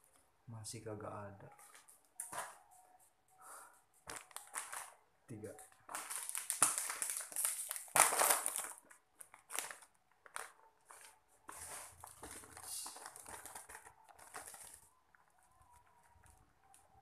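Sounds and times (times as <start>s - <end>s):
plastic packaging crinkling: 3.5s - 16.9s
contents shaken out of bag: 11.6s - 14.9s.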